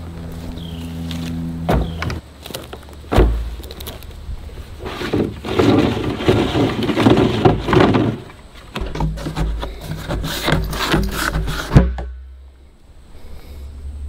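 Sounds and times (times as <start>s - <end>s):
plastic barrel thudding on dirt: 1.6s - 3.9s, 4.8s - 12.2s
hands scraping plastic lid: 4.8s - 12.0s.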